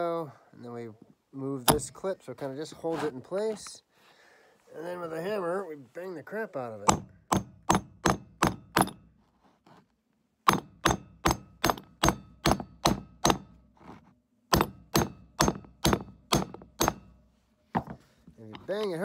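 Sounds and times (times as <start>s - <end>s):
hammer striking steel plunger: 14.5s - 17.2s.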